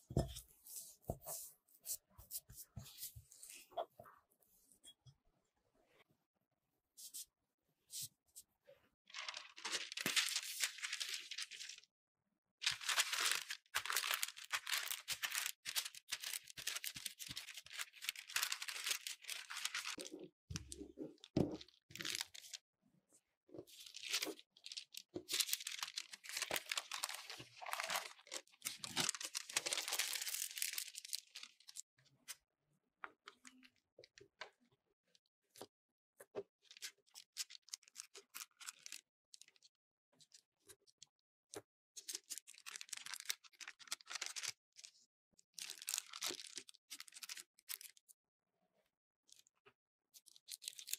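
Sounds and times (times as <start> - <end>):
parchment crinkling under rolling pin: 9.1 - 11.8, 12.6 - 20.8, 23.8 - 31.8.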